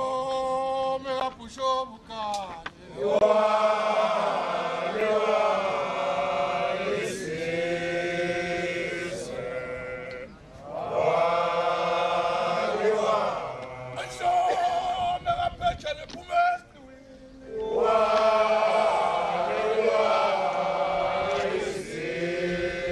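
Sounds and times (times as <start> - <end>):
group of voices chanting: 2.8 - 14.8, 17.4 - 22.9.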